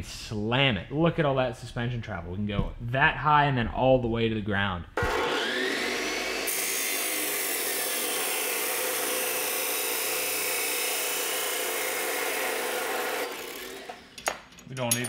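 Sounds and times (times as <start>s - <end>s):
saw grinding through steel: 5.0s - 14.2s
chop saw whining: 5.0s - 14.5s.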